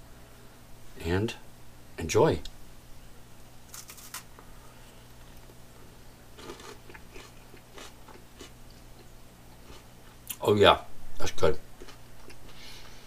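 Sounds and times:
chewing crunches: 0:03.7 - 0:04.3, 0:06.3 - 0:10.4
person crunching cracker: 0:03.7 - 0:04.3, 0:06.4 - 0:08.6.

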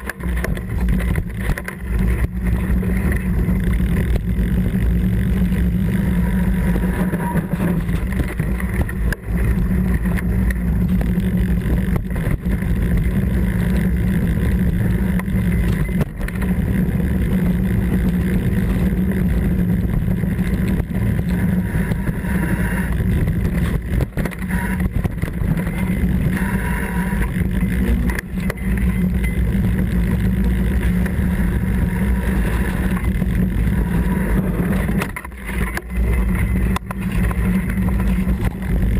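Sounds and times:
bike knocks and rattles: 0:00.0 - 0:05.2, 0:06.3 - 0:22.3
tyres rumbling on trail: 0:00.0 - 0:38.9
wind on microphone: 0:00.0 - 0:38.9.

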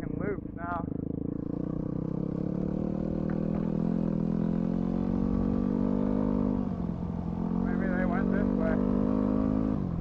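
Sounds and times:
dirt bike engine running: 0:00.0 - 0:10.0.

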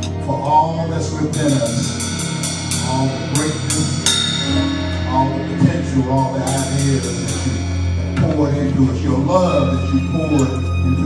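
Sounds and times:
live gospel band: 0:00.0 - 0:11.0
low bass notes: 0:00.0 - 0:11.0
cymbal and drum hits: 0:01.3 - 0:08.5.

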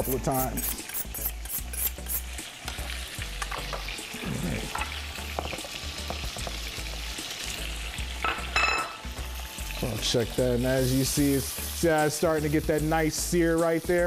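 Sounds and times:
knife drawn across honing steel: 0:00.0 - 0:02.3
chicken searing in hot oil: 0:00.0 - 0:14.0.

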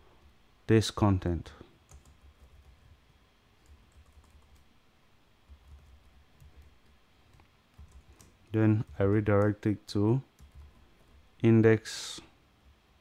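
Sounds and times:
faint keystrokes on computer keyboard: 0:01.8 - 0:03.0, 0:03.6 - 0:04.7, 0:05.5 - 0:09.6, 0:10.3 - 0:11.2.

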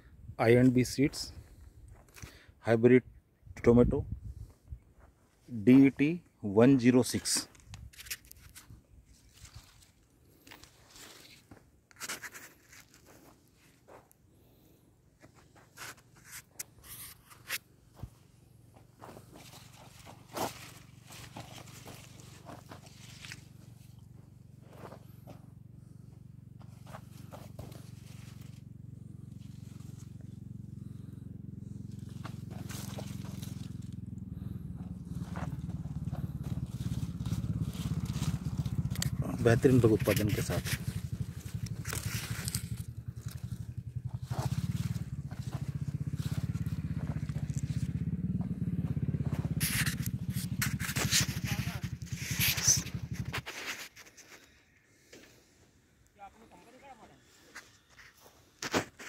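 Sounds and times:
plants rustling and scraping: 0:05.0 - 0:14.2, 0:15.2 - 0:25.4, 0:26.6 - 0:55.6, 0:56.2 - 0:59.0
low engine-like drone: 0:17.0 - 0:53.7.

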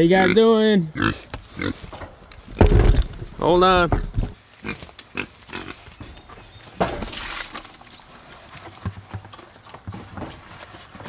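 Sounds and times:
knocks and rustles: 0:01.3 - 0:04.4, 0:06.0 - 0:11.0.

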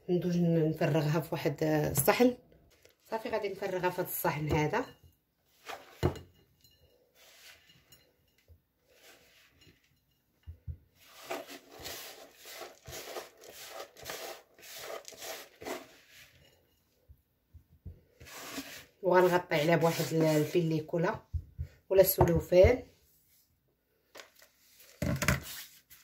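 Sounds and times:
hand scraping plastic bowl: 0:05.5 - 0:06.2, 0:07.1 - 0:07.9, 0:08.8 - 0:10.0, 0:11.0 - 0:16.5, 0:18.1 - 0:21.0, 0:24.7 - 0:26.0.

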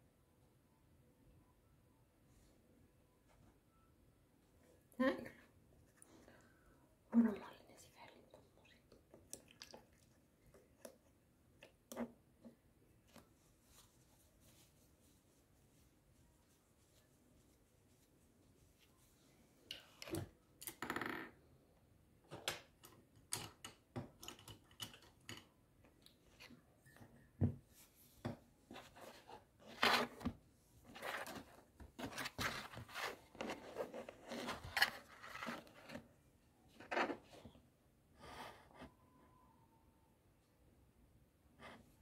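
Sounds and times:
rustling: 0:27.7 - 0:37.5.

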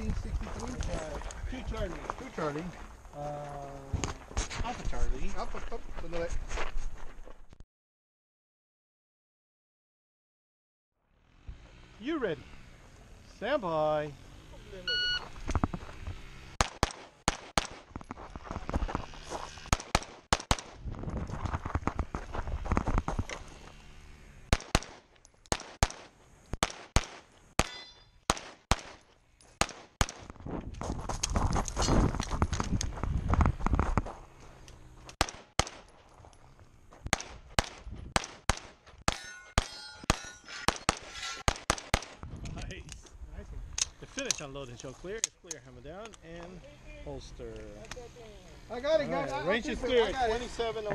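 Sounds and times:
footsteps on gravel: 0:00.0 - 0:07.5, 0:15.2 - 0:16.3, 0:17.7 - 0:20.0, 0:20.8 - 0:23.8, 0:30.2 - 0:38.1
pistol shots: 0:16.6 - 0:17.9, 0:19.7 - 0:20.8, 0:24.5 - 0:29.0, 0:29.6 - 0:30.3, 0:35.2 - 0:35.9, 0:37.1 - 0:42.2
metallic ringing: 0:27.6 - 0:28.2, 0:39.1 - 0:41.5.

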